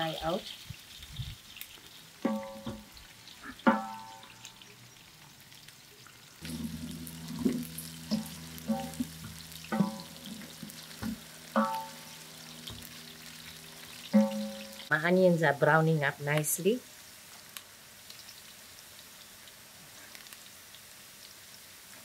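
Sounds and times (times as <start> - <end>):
faint sizzle: 0.0 - 22.0
spoon clanking on metal pot: 2.2 - 2.9, 3.6 - 4.4, 7.3 - 13.1, 14.0 - 14.9
steady low hum: 6.4 - 14.9.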